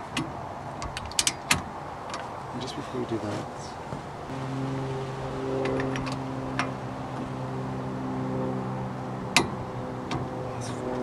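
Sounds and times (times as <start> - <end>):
steady low hum: 2.4 - 11.0.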